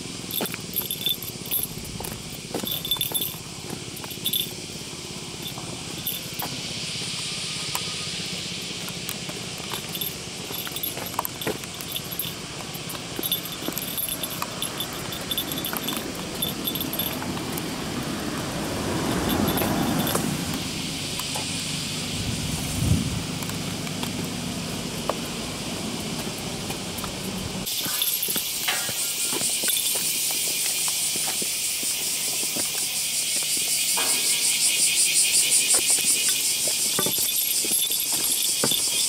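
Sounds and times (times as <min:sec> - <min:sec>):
high hiss of insects: 0:00.0 - 0:39.0
vehicle passing: 0:00.2 - 0:28.0.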